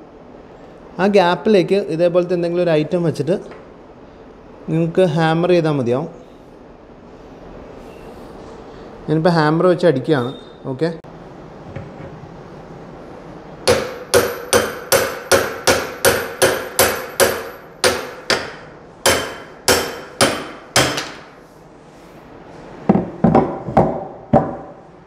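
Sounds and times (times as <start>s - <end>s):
hammer striking steel chisel: 13.6s - 21.3s.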